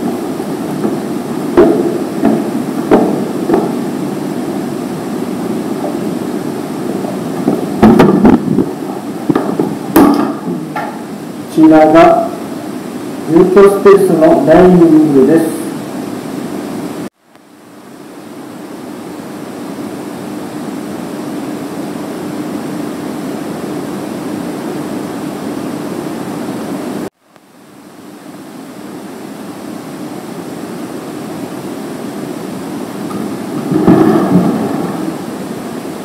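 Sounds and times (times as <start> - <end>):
steady rushing noise: 0.0 - 17.1, 28.7 - 36.0.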